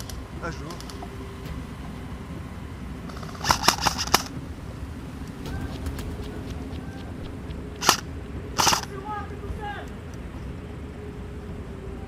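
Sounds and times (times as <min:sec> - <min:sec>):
steady background hiss: 0:00.0 - 0:12.0
airsoft rifle shots: 0:07.8 - 0:08.0, 0:08.6 - 0:08.9.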